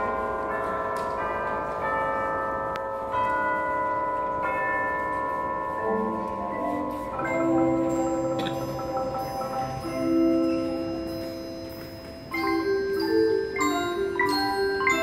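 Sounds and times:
mallet keyboard chords: 3.1 - 15.0
low marimba notes: 5.8 - 15.0.

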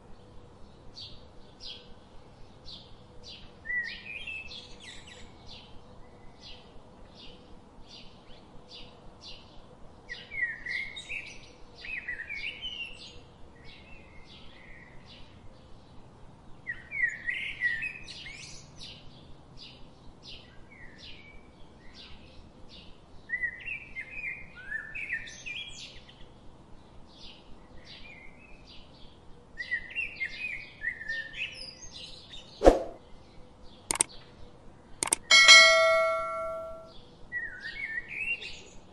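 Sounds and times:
small birds chirping: 0.1 - 38.9
sharp clicks: 33.9 - 34.1, 35.0 - 35.3.

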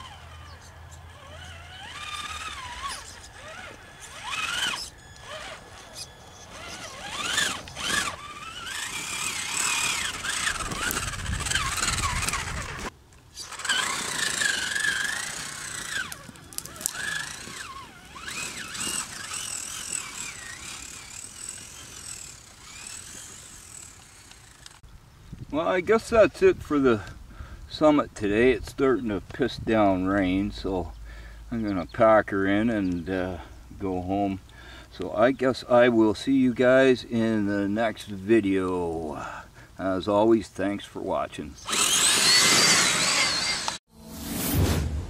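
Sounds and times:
electric motor and gearbox whining: 0.0 - 24.9, 41.6 - 43.8.

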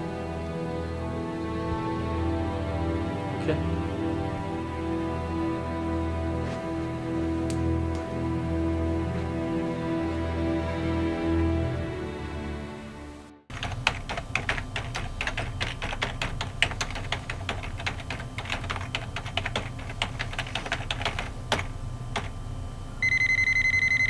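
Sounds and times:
keyboard keystroke clicks: 13.6 - 22.4
steady electronic beep: 23.0 - 24.0.

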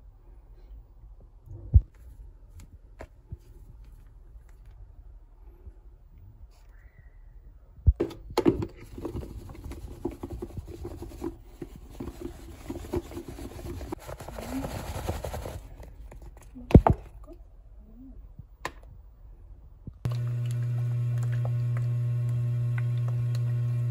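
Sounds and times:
food rattling in a shaken container: 8.8 - 15.8.

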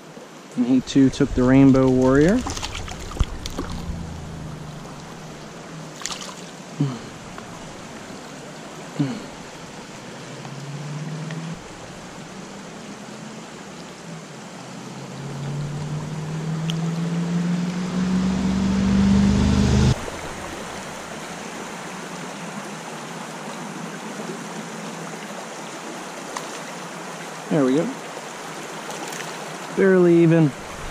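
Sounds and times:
stream rushing over rocks: 0.0 - 17.4, 20.0 - 30.9
distant engine hum rising in pitch: 0.8 - 6.2, 6.8 - 21.4.

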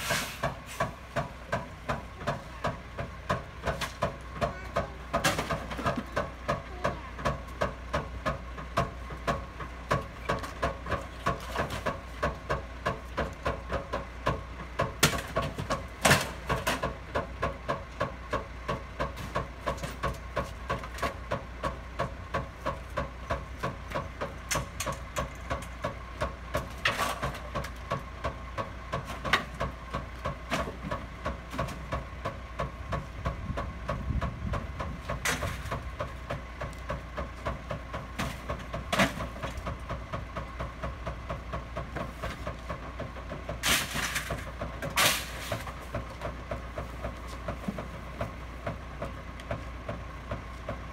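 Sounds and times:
garbage truck engine running: 0.0 - 50.9
junk banging into truck hopper: 0.0 - 50.9.

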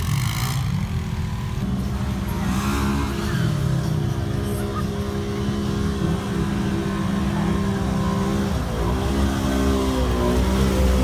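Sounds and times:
off-road vehicle engine revving: 0.0 - 11.0.

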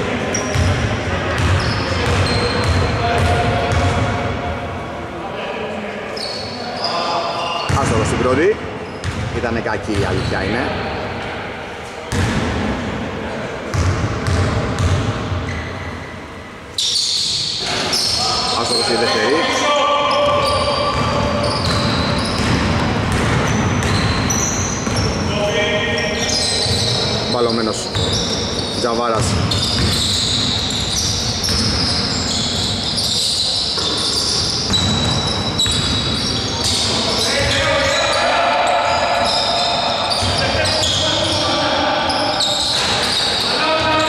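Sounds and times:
sneakers squeaking: 0.1 - 4.4, 6.1 - 12.7, 13.7 - 44.0
basketball bouncing: 0.5 - 4.1, 9.0 - 10.2, 13.7 - 15.2, 20.2 - 25.2, 29.2 - 32.1, 34.6 - 37.6
basketball bouncing on hardwood floor: 13.7 - 15.1, 20.9 - 25.1, 29.2 - 30.0, 31.4 - 31.8.

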